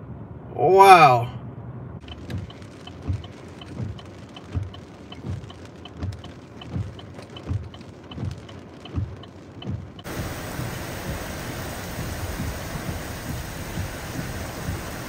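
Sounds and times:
faint ticks: 2.0s - 10.1s
heavy rain hissing: 2.0s - 15.0s
rhythmic low thumps: 2.0s - 15.0s.

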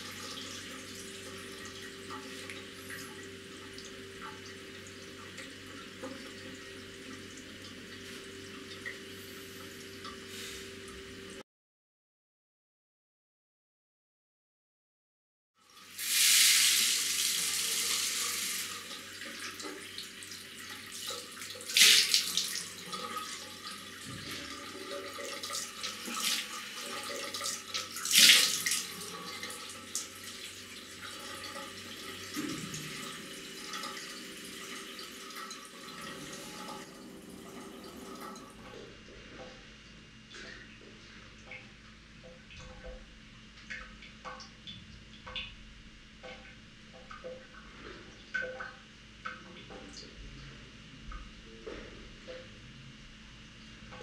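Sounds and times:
water running from a tap: 0.0s - 11.4s, 15.7s - 38.7s
water splashing on face: 21.6s - 22.6s.

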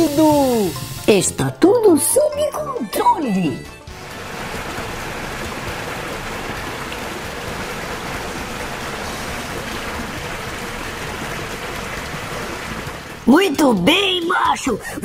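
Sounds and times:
water spraying from hose: 0.0s - 1.5s, 3.9s - 13.6s.

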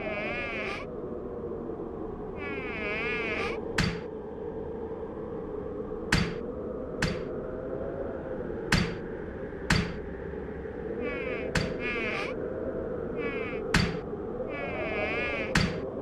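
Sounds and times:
steady low hum: 5.8s - 12.0s, 13.1s - 14.5s
fly buzzing: 11.0s - 12.4s, 13.2s - 15.8s.

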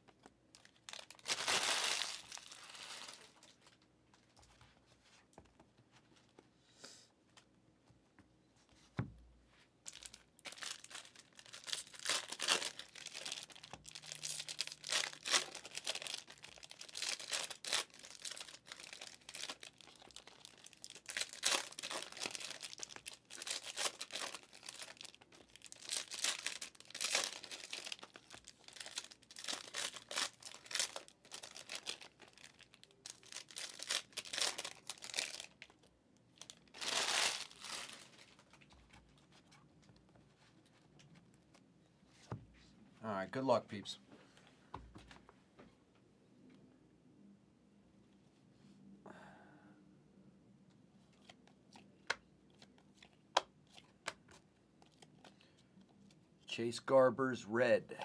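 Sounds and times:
pack wrappers crinkling: 0.2s - 3.8s, 9.9s - 38.9s.

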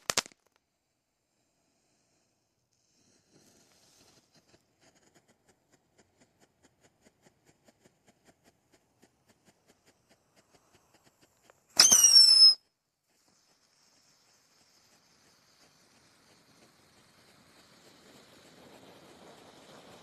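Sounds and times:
firework crackles: 0.0s - 0.6s, 8.7s - 20.0s
faint firework fountain hiss: 0.0s - 6.4s, 7.0s - 20.0s
firework whistle: 11.7s - 20.0s.

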